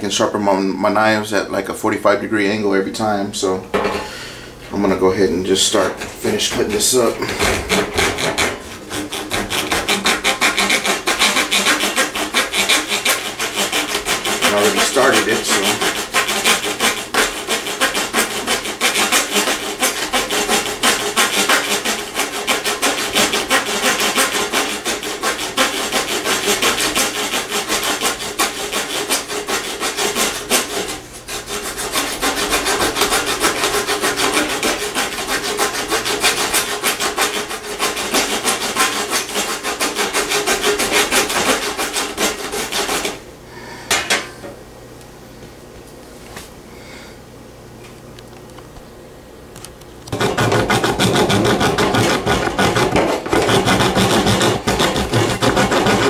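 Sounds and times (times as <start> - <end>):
saw blade cutting wood: 5.7 - 43.2, 50.1 - 56.0.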